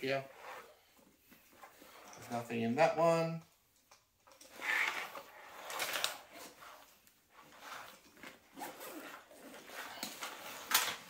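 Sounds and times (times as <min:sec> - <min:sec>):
bag fabric rustling: 0:04.4 - 0:11.0
backpack zipper rasping: 0:04.5 - 0:10.7.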